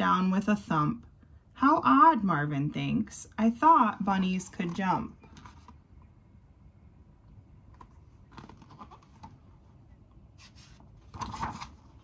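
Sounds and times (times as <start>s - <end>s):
paper pages rustling and turning: 7.7s - 9.6s, 10.4s - 12.0s.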